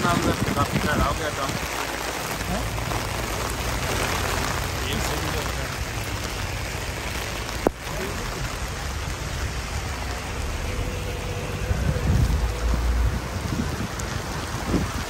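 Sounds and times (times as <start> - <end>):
rain on paving and tarpaulins: 0.0 - 15.0
low rumble: 9.0 - 15.0.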